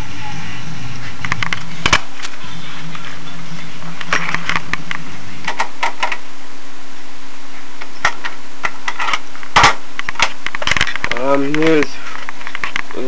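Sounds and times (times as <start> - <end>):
low hum and hiss: 0.0 - 13.0
cassette deck clicks and knocks: 5.5 - 6.2.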